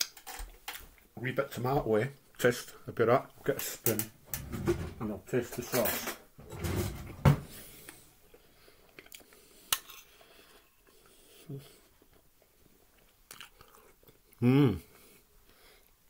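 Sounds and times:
cutlery scraping a plate: 9.7s - 10.1s.

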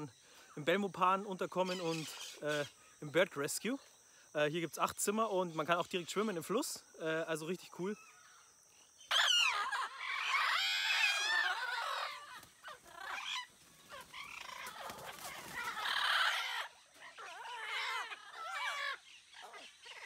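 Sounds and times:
parrots squawking: 9.1s - 20.0s.

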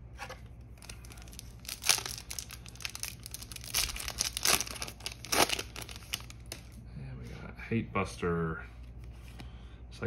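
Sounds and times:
foil pack crinkling and tearing: 0.7s - 6.8s.

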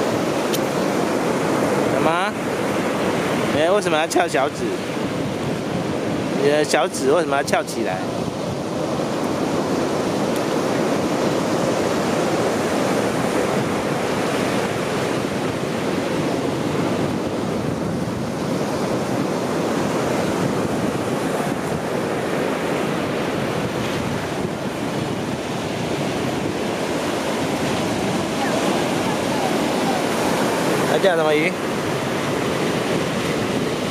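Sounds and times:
ocean surf breaking: 0.0s - 33.9s.

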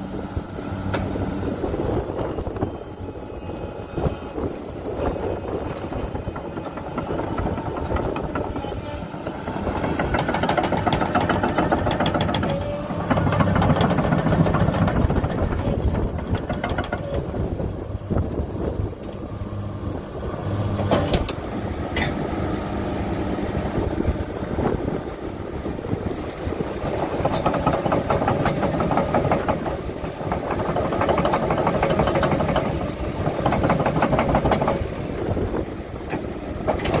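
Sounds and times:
diesel engine running: 0.0s - 37.0s
track chains clanking: 5.6s - 17.3s, 26.6s - 37.0s.

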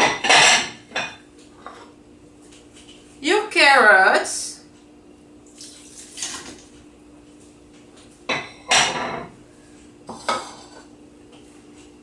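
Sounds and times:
dishware clattering: 0.0s - 1.2s, 8.3s - 9.3s, 10.1s - 10.8s.

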